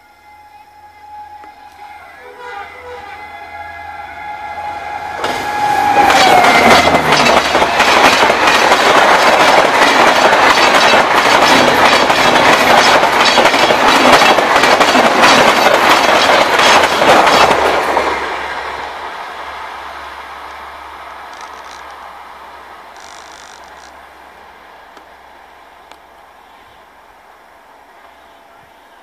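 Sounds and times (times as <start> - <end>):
locomotive horn: 0.0 - 8.6
train coaches rushing by: 1.6 - 26.6
wheels clickety-clack over rail joints: 5.2 - 18.2, 20.5 - 22.1.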